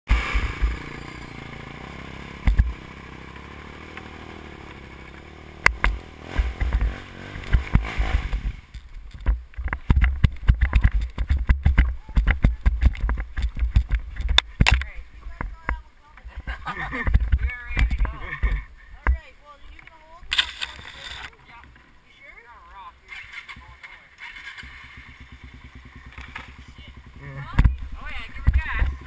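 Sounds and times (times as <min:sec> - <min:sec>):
quad engine idling: 0:00.1 - 0:08.8, 0:22.9 - 0:29.0
thumps and rattles on rough trail: 0:00.1 - 0:29.0
sharp engine knocks: 0:05.6 - 0:15.8.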